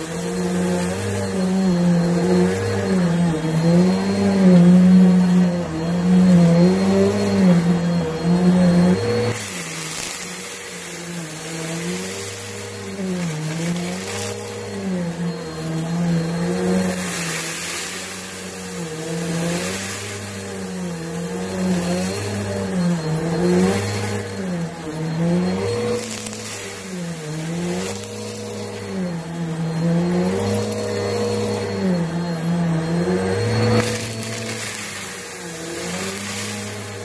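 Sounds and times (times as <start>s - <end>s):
vacuum cleaner on carpet: 0.0s - 37.0s.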